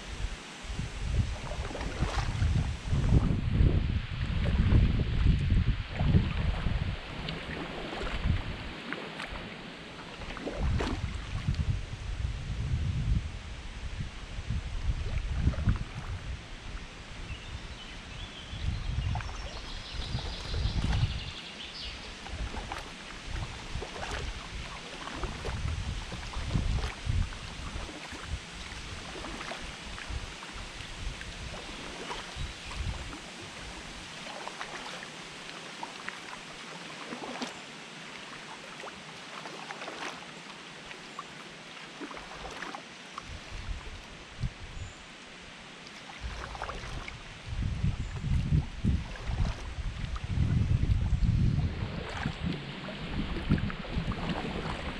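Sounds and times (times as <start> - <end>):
paddle splashing in water: 0.0 - 3.5, 4.2 - 11.8, 14.8 - 44.6, 45.5 - 54.9
wind rumble on microphone: 0.0 - 35.0, 42.2 - 45.1, 46.2 - 54.9
bird singing: 17.3 - 22.1
water dripping off paddle: 22.0 - 33.4, 34.0 - 44.1, 52.0 - 54.9.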